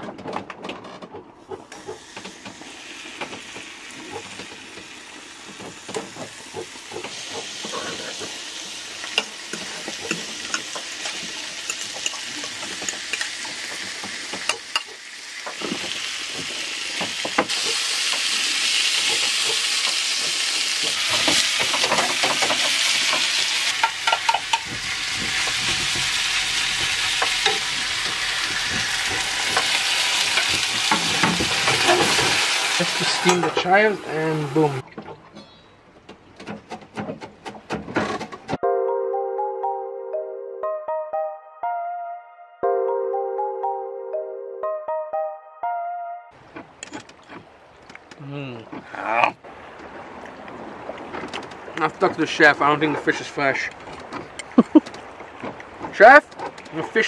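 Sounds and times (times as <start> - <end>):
fish sizzling in a frying pan: 8.3 - 34.8.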